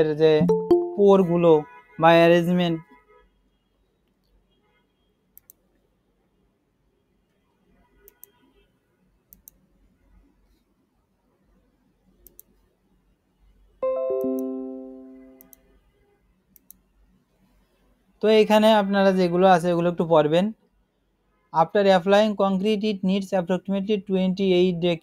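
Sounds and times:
computer notification chime: 0.4 - 1.4, 13.8 - 15.4
faint clicks: 5.4 - 5.6, 7.9 - 8.5, 9.3 - 9.6, 12.2 - 12.6, 15.4 - 15.7, 16.5 - 16.9.

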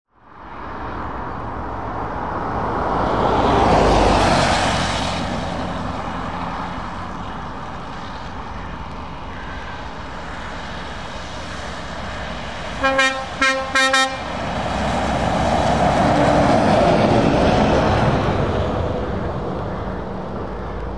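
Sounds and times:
vehicles passing on wet road: 0.2 - 20.9
tyres hissing on wet tarmac: 3.6 - 20.9
truck horn toots: 12.8 - 14.3.

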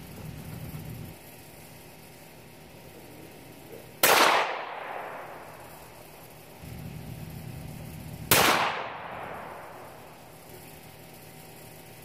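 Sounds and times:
vehicle engine hum: 0.0 - 4.0, 5.6 - 8.4
gunshot echo: 4.0 - 5.6, 8.3 - 9.8
rifle shot: 4.0 - 5.6, 8.2 - 10.1.

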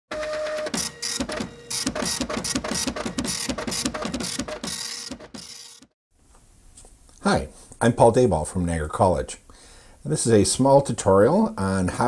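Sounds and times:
rhythmic mechanical clatter: 0.2 - 5.9.

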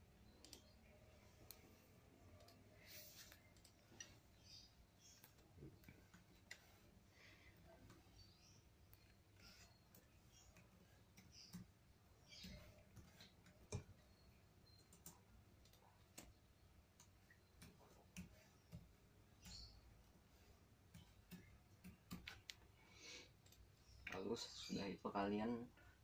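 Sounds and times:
computer mouse clicks: 0.2 - 6.9, 7.8 - 19.8, 20.8 - 22.7, 23.4 - 24.2.

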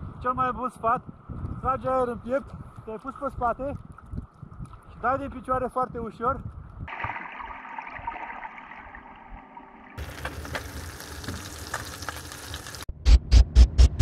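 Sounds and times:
sea water splashing and fizzing: 6.9 - 12.9
music beat: 12.9 - 14.0.

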